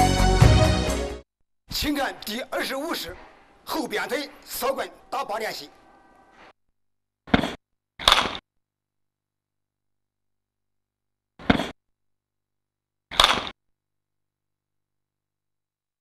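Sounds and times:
sharp whacks on striking target: 7.3 - 8.4, 11.4 - 11.8, 13.1 - 13.6.

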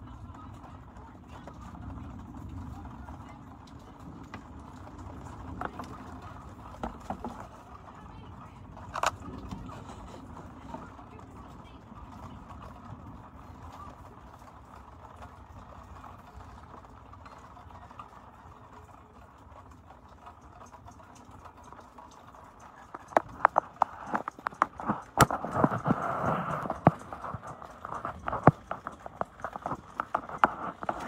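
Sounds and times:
sharp clicks and knocks: 20.6 - 31.0.

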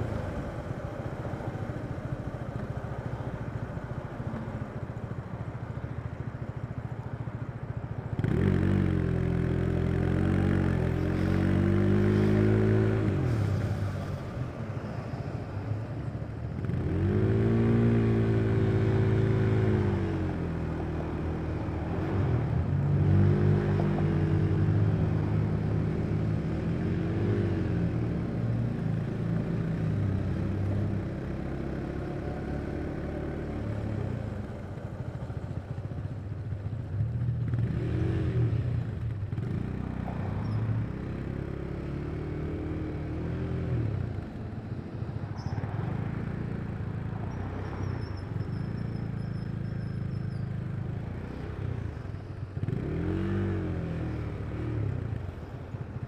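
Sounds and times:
motorcycle engine revving: 51.1 - 55.3.

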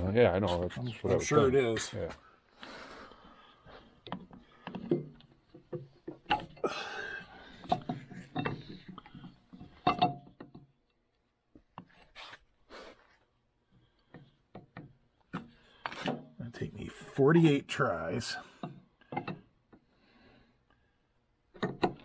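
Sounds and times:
metal clinks and knocks: 7.6 - 10.8.

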